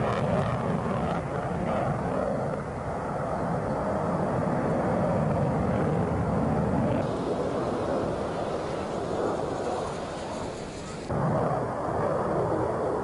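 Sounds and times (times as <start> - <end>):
jet fighter engines rushing: 0.0 - 13.0.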